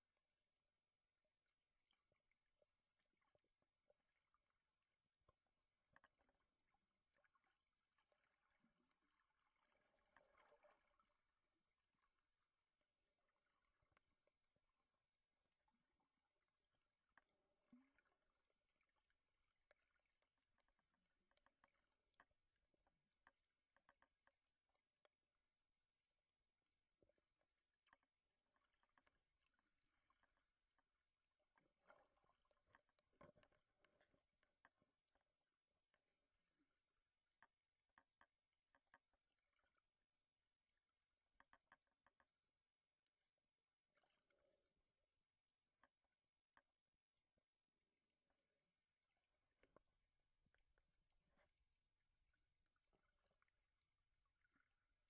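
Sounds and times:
faint underwater clicks: 0.0 - 55.0.

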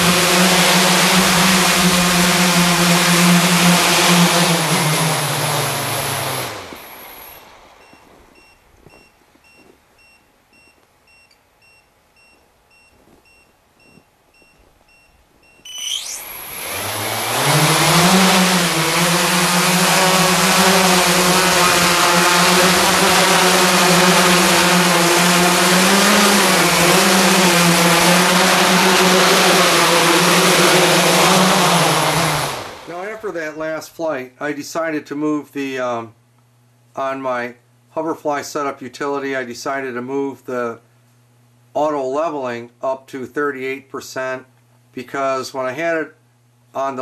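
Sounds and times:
drone propellers whining: 0.0 - 9.0, 15.4 - 33.6
faint high beeps: 7.2 - 16.3.

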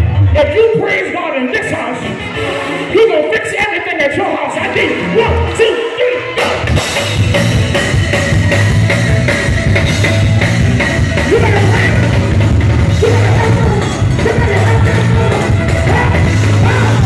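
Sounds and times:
electric bass: 0.0 - 3.1, 4.4 - 17.0
gospel band playing: 0.0 - 17.0
drum kit: 6.4 - 17.0.

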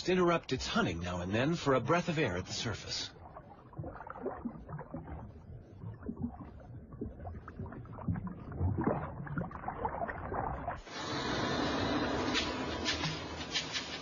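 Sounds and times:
water sloshing and splashing: 0.7 - 11.0.

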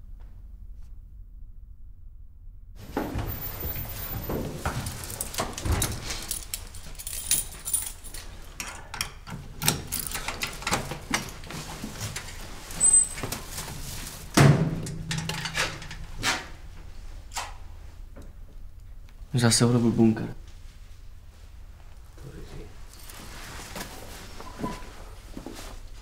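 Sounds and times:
objects being handled: 2.8 - 14.3.

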